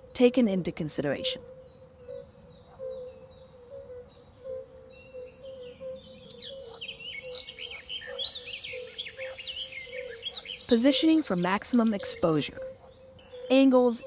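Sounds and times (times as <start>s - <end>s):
mix of bird calls: 0.0s - 14.0s.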